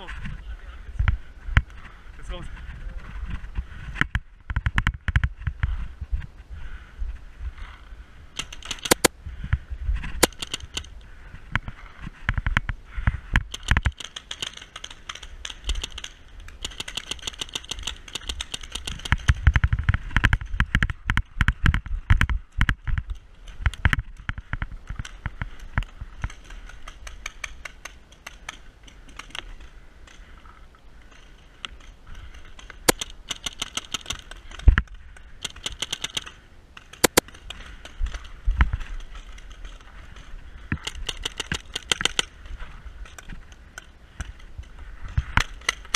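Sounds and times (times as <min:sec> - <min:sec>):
gear rattling: 0:08.4 - 0:09.1, 0:10.2 - 0:11.0, 0:13.4 - 0:45.9
paintball marker shots: 0:08.4 - 0:09.1, 0:10.2 - 0:10.9, 0:32.7 - 0:34.8, 0:35.4 - 0:38.0.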